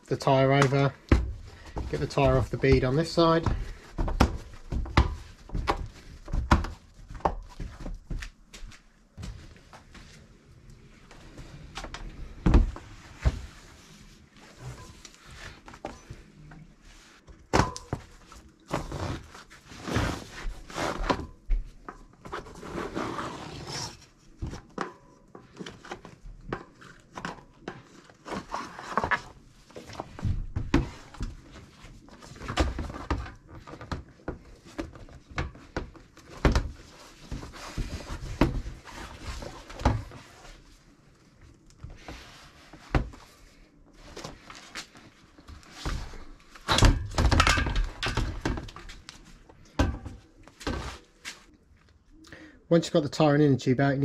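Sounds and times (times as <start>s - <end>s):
knocks and thuds of bicycle wheel: 0.5s - 8.3s, 30.0s - 31.5s, 32.5s - 38.9s, 45.8s - 49.0s.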